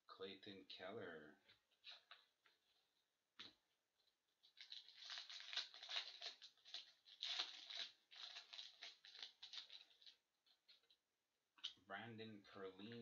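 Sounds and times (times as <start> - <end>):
foil wrapper tearing and crinkling: 4.5 - 10.2.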